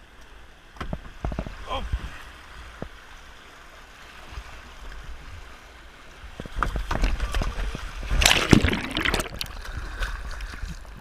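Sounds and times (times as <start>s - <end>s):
sharp splashes or knocks: 8.1s - 10.6s.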